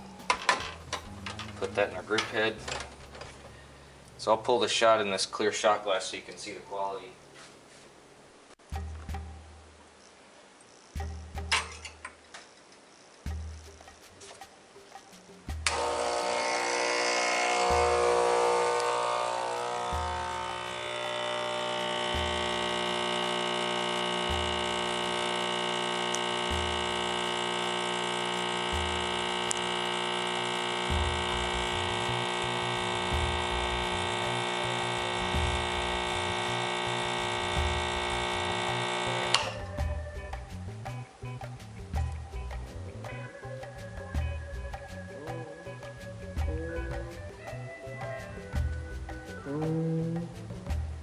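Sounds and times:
espresso machine pump buzzing: 15.6 - 40.0.

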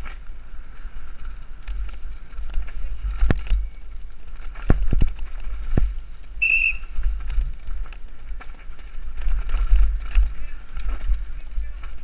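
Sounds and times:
wind buffeting microphone: 0.0 - 12.0
bike knocks and rattles: 1.1 - 12.0
short high whistle-like tone: 6.4 - 6.9.

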